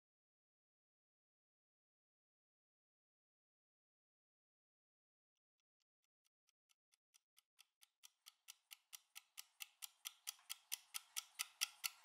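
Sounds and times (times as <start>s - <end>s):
kitchen timer ticking fast: 7.4s - 12.0s.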